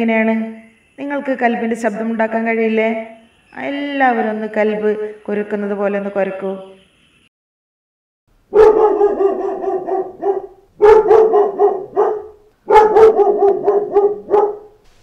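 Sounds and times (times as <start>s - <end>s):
dog barking rapidly: 8.5s - 14.8s.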